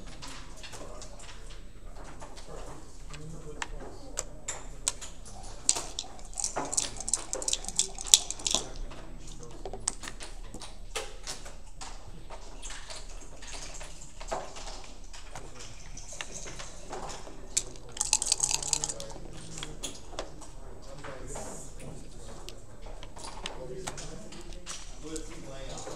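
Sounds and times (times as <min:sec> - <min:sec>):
dice and checkers clicking on board: 0:00.1 - 0:20.4.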